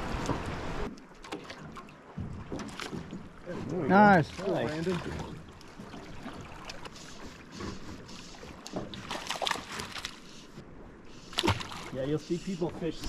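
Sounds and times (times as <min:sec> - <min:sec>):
water moving around boat hull: 0:00.0 - 0:13.0
net splashing in water: 0:09.0 - 0:10.2, 0:11.3 - 0:12.0.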